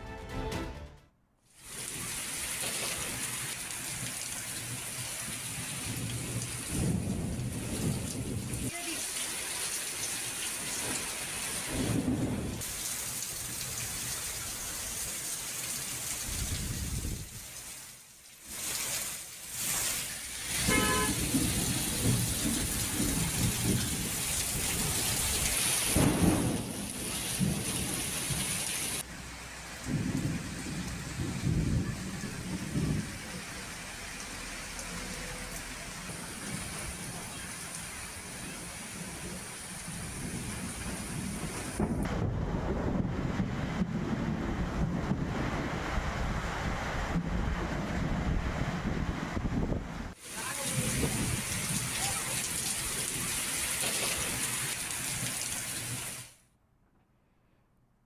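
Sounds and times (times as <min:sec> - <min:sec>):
heavy rain pouring: 0:01.6 - 0:56.4
short horn-like beep: 0:20.7 - 0:21.2.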